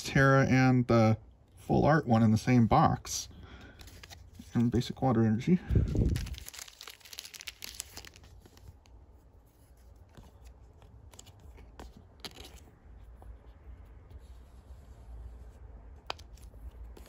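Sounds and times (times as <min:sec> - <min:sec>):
plastic sleeve crinkling: 0:05.7 - 0:09.1.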